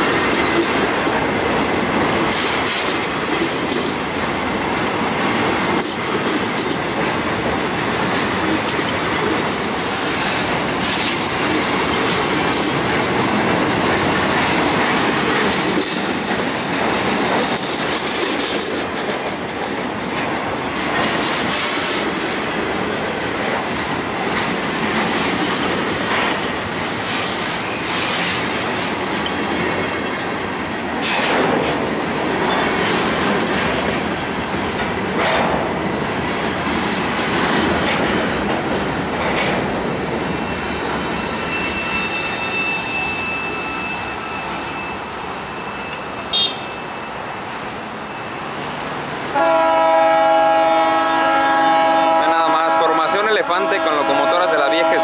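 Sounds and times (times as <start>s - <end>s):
wheels clacking over rail joints: 0.0s - 46.5s
freight train wheels rumbling: 0.0s - 55.0s
high wheel squeal: 13.6s - 19.0s, 39.0s - 49.3s.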